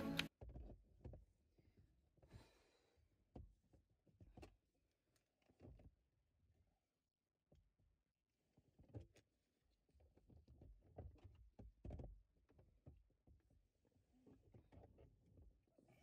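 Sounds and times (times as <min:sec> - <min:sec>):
faint knocks and handling sounds: 0:00.0 - 0:02.4, 0:03.2 - 0:06.6, 0:07.5 - 0:16.0.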